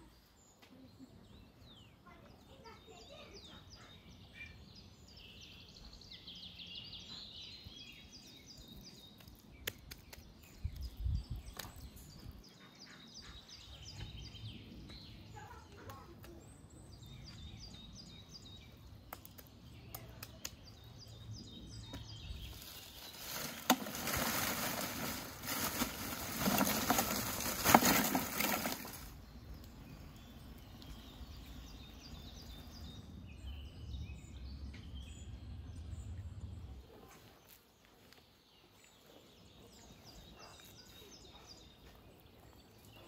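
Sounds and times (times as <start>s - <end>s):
small birds chirping: 0.0s - 43.0s.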